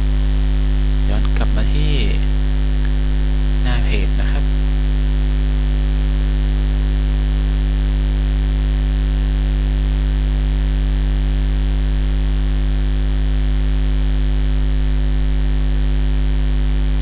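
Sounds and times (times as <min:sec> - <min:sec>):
electrical mains hum: 0:00.0 - 0:17.0
recording hiss: 0:01.0 - 0:03.0, 0:03.6 - 0:04.6.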